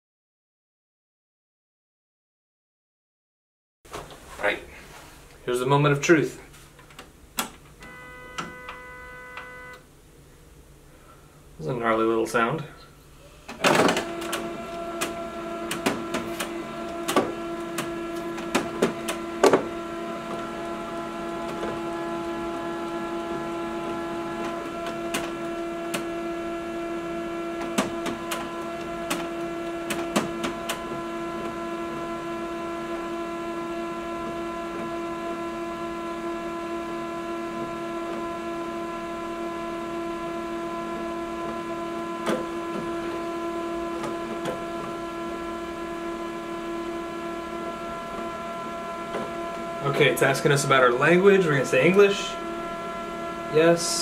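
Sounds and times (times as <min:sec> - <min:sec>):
printer mechanical hum: 0:06.6 - 0:09.9, 0:13.0 - 0:54.0
printer clicks and clunks: 0:06.9 - 0:08.8, 0:13.5 - 0:22.4, 0:23.4 - 0:26.2, 0:27.5 - 0:31.6, 0:42.2 - 0:43.1.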